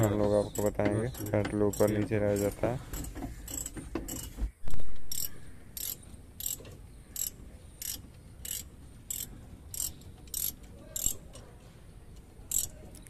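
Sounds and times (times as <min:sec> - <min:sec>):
ratchet spanner clicking: 0:00.0 - 0:04.3, 0:05.1 - 0:11.4, 0:12.5 - 0:12.8.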